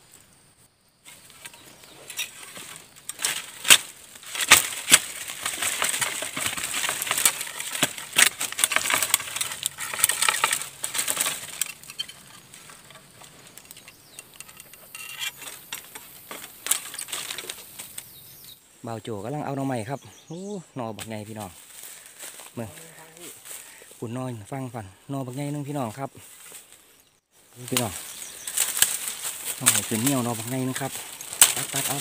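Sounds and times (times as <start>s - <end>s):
bamboo rustling and crackling: 0.0s - 20.1s, 20.9s - 32.0s
bamboo cracking sharply: 1.3s - 18.1s, 27.6s - 32.0s.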